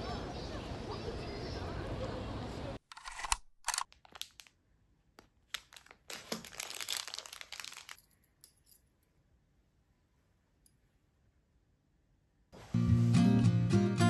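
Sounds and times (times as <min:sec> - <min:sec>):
plastic packets crinkling: 0:03.0 - 0:04.6, 0:05.2 - 0:08.2.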